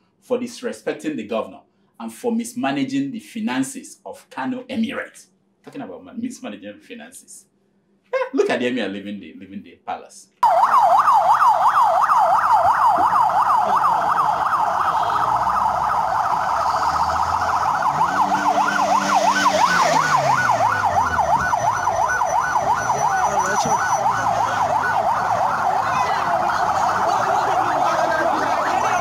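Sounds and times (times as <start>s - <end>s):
electronic yelp siren: 10.4s - 29.0s
lower siren tone: 10.4s - 29.0s.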